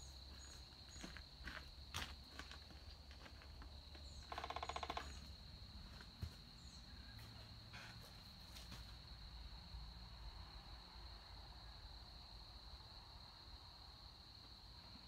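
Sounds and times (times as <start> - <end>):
high insect buzz: 4.1 - 5.5.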